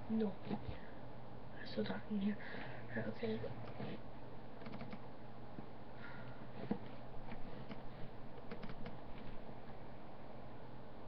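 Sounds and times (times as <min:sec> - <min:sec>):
faint scattered clicks: 0:04.6 - 0:05.0.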